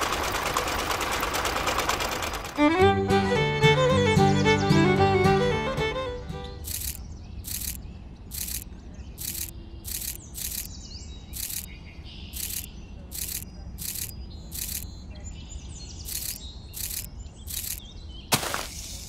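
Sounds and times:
birds chirping: 3.6 - 19.0
regular hissing pulse: 6.7 - 8.6, 9.2 - 10.7, 12.4 - 14.8.

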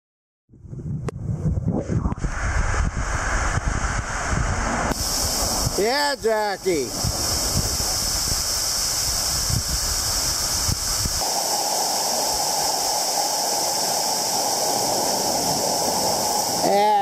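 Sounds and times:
low rumble: 0.5 - 5.8
waterfall rushing: 3.1 - 17.0.

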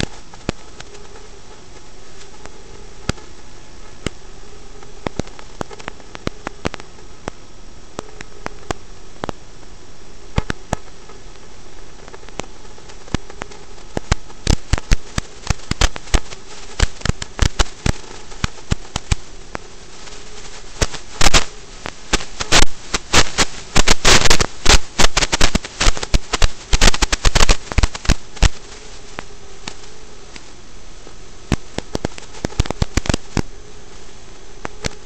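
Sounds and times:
crackling popping static: 0.0 - 35.0
faint steady hum: 0.0 - 35.0
steady hiss: 0.0 - 35.0
sharp clicks: 10.3 - 30.6, 31.5 - 33.5.

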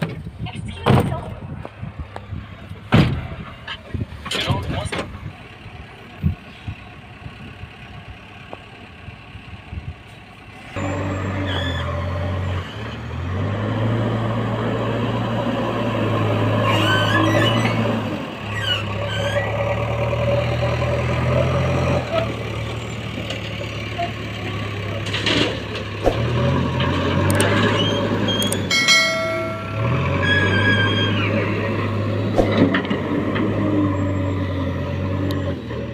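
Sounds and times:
heavy diesel engines running: 0.0 - 35.9
brief higher tone: 28.7 - 31.2.

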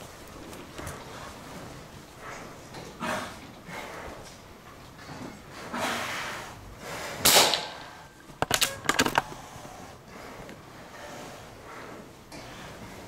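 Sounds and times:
air gun shot: 7.2 - 8.7.

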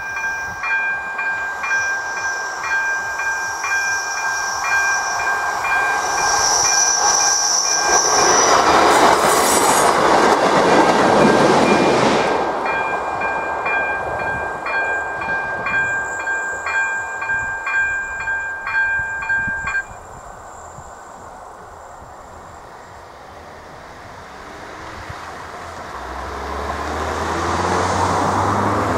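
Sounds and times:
train running on track: 0.0 - 28.9
level crossing bell: 12.7 - 19.9.

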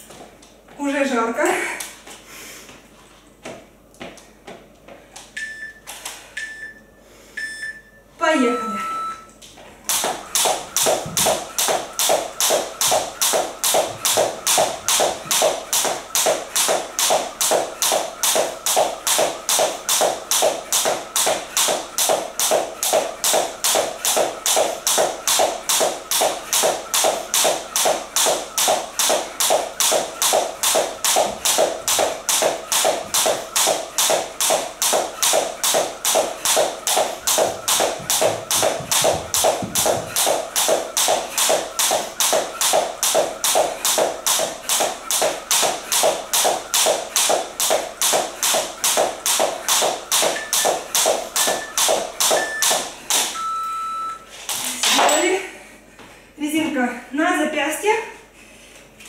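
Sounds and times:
jump rope swishing: 9.8 - 53.4
rope slapping wooden floor: 9.9 - 53.4.

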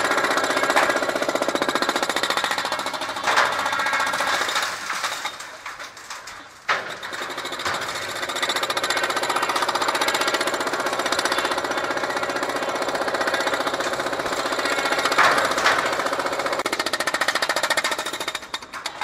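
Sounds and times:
jackhammer pounding concrete: 0.0 - 5.4, 6.7 - 19.0.

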